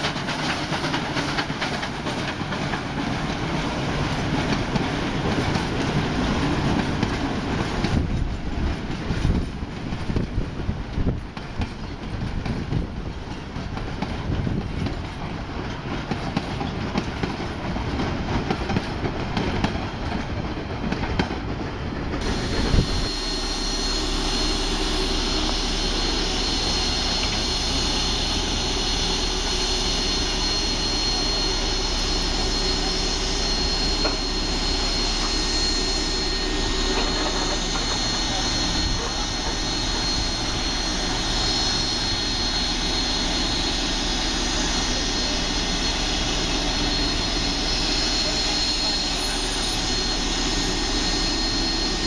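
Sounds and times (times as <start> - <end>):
train carriages rumbling past: 0.0 - 52.0
steam venting hiss: 22.2 - 52.0.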